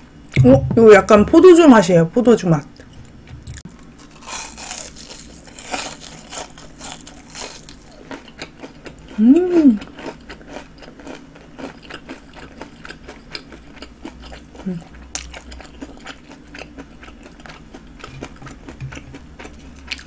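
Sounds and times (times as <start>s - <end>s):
crunchy chewing of fried food: 2.8s - 20.0s
person humming: 9.2s - 9.8s.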